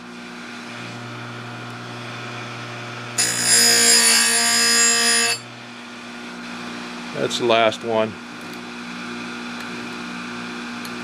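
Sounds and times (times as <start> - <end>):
grinder motor humming: 0.1 - 11.0
grinding wheel grinding metal: 3.1 - 5.6.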